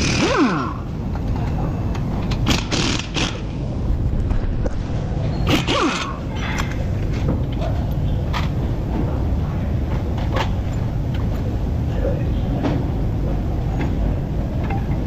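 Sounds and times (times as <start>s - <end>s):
pneumatic impact wrench: 0.0s - 0.9s, 2.3s - 3.6s, 5.4s - 6.7s
low workshop rumble: 0.0s - 15.0s.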